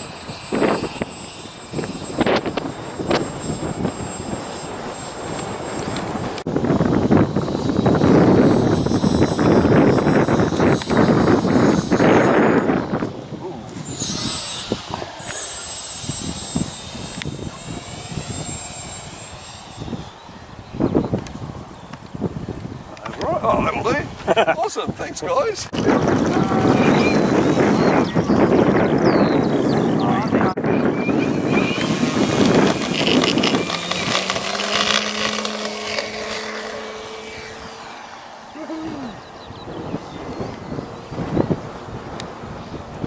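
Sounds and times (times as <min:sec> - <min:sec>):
model airplane motor whine: 0:00.0 - 0:22.9, 0:25.7 - 0:43.0
wind buffeting microphone: 0:00.0 - 0:43.0.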